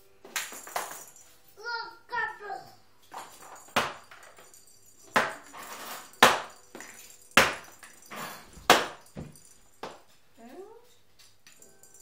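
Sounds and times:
stick smacking something hard: 8.6s - 9.3s.

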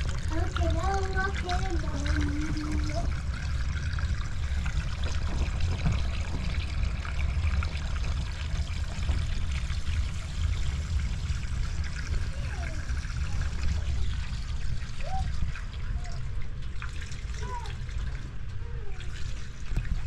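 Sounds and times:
water trickling: 0.0s - 20.0s.

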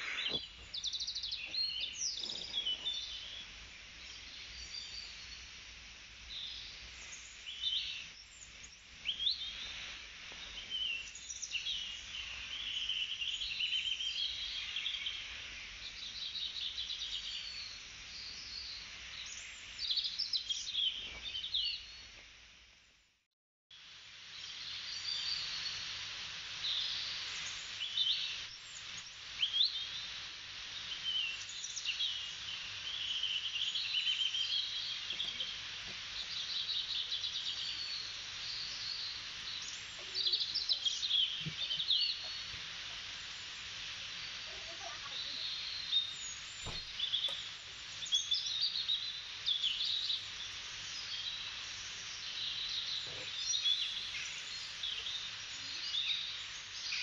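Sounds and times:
small birds chirping and twittering: 0.0s - 23.0s, 24.0s - 57.0s
background hiss: 0.0s - 57.0s.

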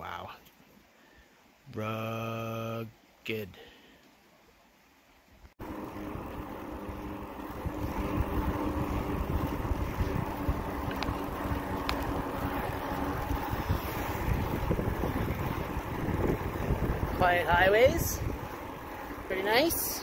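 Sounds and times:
low electric motor hum: 5.6s - 20.0s
wind rushing over microphone: 5.7s - 20.0s.

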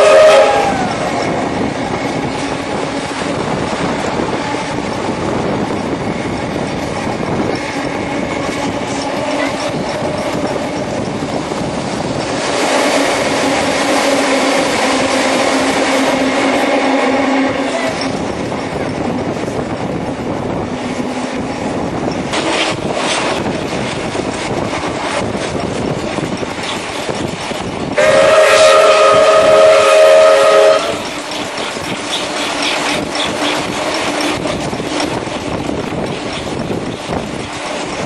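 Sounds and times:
steam whistle blast: 0.0s - 1.1s, 28.0s - 31.0s
train carriage rumbling and rattling: 0.0s - 38.0s.

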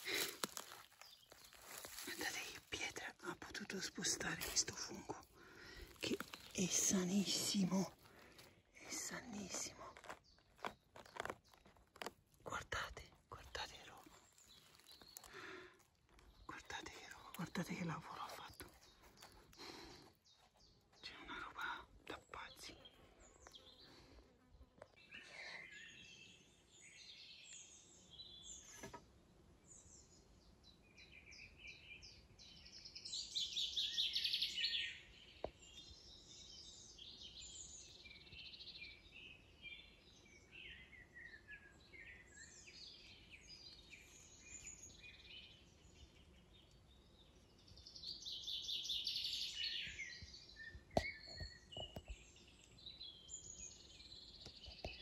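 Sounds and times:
songbirds singing: 0.0s - 55.0s
rapid trilled bird songs: 16.2s - 23.9s, 29.8s - 55.0s.

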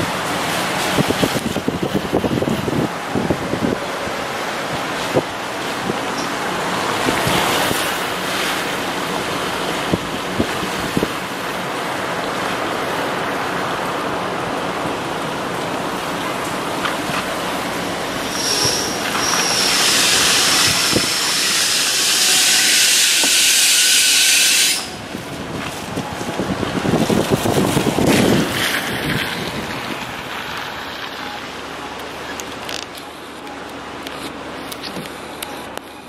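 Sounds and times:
tyres hissing on wet pavement: 0.0s - 36.0s
thin high whine: 18.2s - 25.1s.

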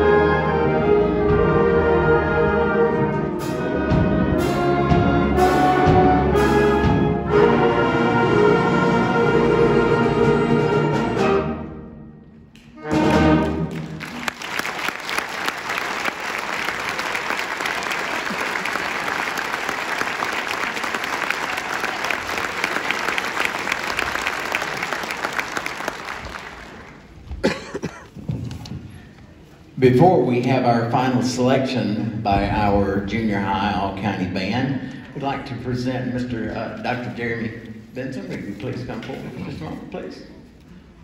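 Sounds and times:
audience applause: 13.1s - 27.2s.

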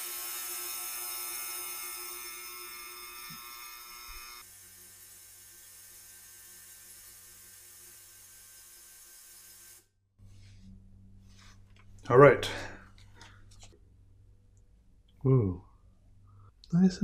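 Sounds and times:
ultrasonic cleaner buzzing: 0.0s - 9.8s.

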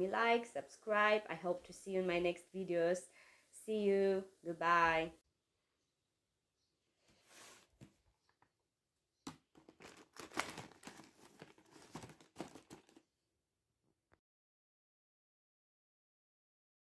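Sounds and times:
paper and plastic bag rustling: 9.6s - 13.1s.

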